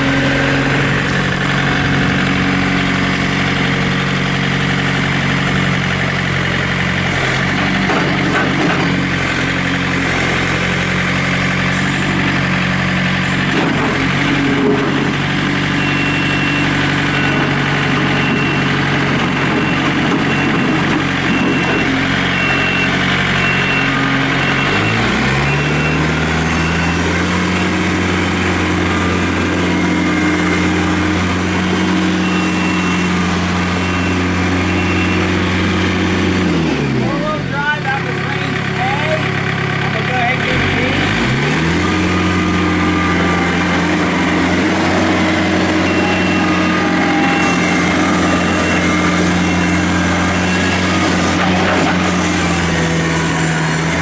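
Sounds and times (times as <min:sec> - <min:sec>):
diesel engine running: 0:00.0 - 0:54.0
high beeps: 0:44.6 - 0:51.1.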